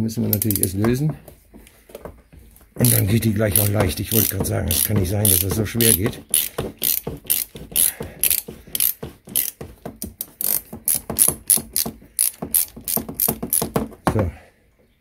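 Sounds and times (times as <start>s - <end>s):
ratchet wrench clicking: 0.3s - 0.8s, 2.8s - 13.8s.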